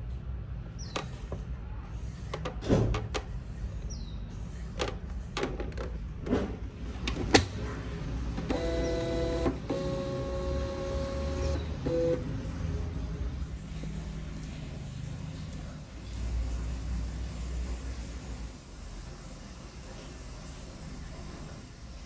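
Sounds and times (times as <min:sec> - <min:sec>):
plastic clicks and knocks: 0:02.3 - 0:03.3
printer feed motor whine: 0:08.4 - 0:12.3.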